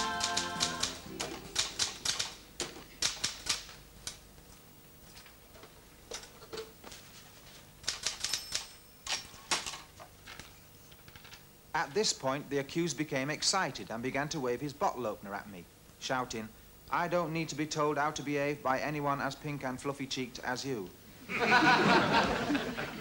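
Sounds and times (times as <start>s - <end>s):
typewriter keystrokes: 0.0s - 4.2s, 7.8s - 9.3s.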